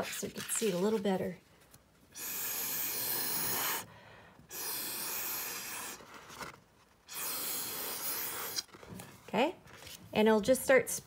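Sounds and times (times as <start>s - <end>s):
breath blown through a straw: 2.2s - 6.2s, 7.1s - 8.7s.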